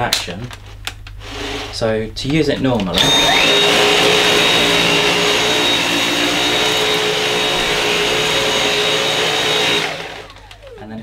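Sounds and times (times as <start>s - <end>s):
vacuum cleaner motor whine: 1.2s - 1.8s, 2.9s - 11.0s
vacuum head on carpet: 2.8s - 10.9s.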